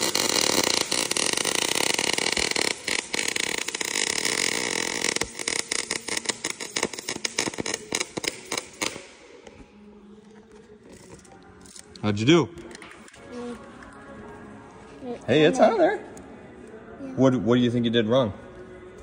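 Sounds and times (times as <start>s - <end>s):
welding arc crackling: 0.0s - 9.2s.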